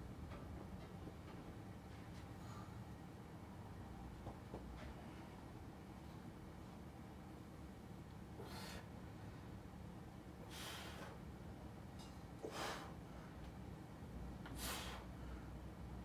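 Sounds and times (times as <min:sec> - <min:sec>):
low steady hum: 0:00.0 - 0:16.0
man breathing forcefully: 0:08.4 - 0:08.9, 0:10.4 - 0:11.2, 0:12.4 - 0:13.4, 0:14.5 - 0:15.6.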